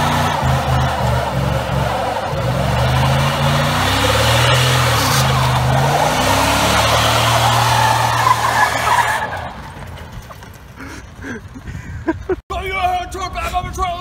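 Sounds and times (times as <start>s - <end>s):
truck engine at high revs: 0.0s - 11.2s
tyre squealing on pavement: 0.0s - 11.3s.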